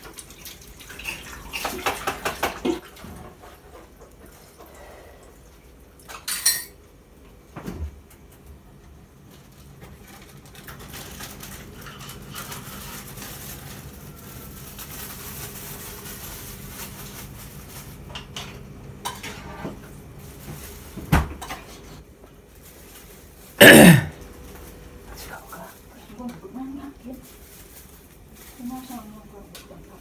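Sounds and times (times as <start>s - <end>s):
kitchen utensils clinking and knocking: 1.0s - 2.8s, 6.0s - 6.8s
loud clatter of pots: 1.0s - 4.2s.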